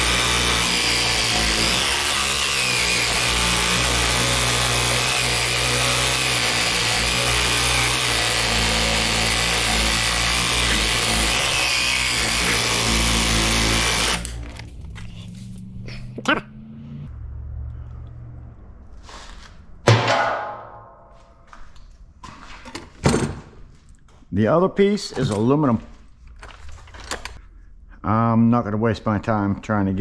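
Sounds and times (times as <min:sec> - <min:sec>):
power saw cutting steel: 0:00.0 - 0:15.7.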